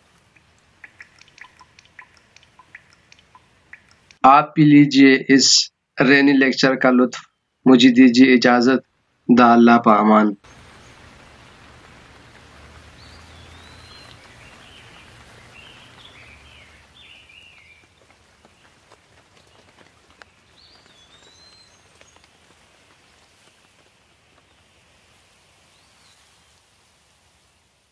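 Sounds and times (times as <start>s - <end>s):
steady rain falling: 0.0s - 4.2s, 10.0s - 27.9s
water drops dripping: 0.1s - 4.2s, 12.4s - 16.8s
bird chirping: 0.3s - 4.2s, 12.8s - 18.7s, 19.4s - 22.4s.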